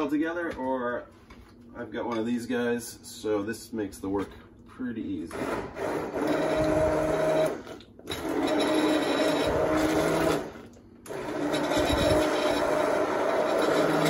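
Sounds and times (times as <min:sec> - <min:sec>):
immersion blender motor humming: 0:05.3 - 0:14.0.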